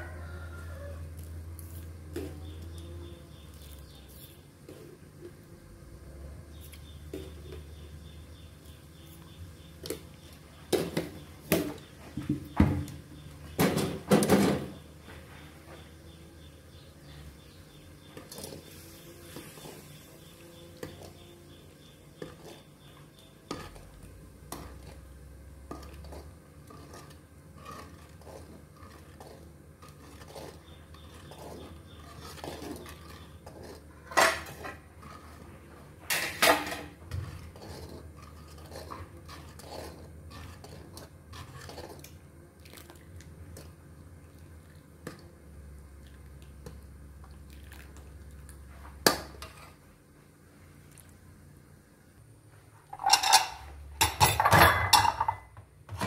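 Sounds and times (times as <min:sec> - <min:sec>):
dishes and utensils clinking: 0:52.9 - 0:56.0.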